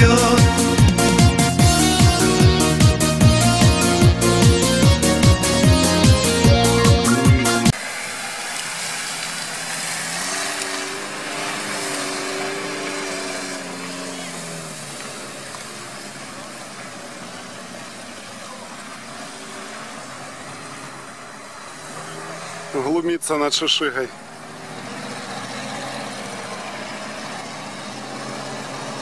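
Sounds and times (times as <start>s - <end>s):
electronic music: 0.0s - 7.8s
rough noise: 0.0s - 23.1s
car engine working in mud: 0.0s - 29.0s.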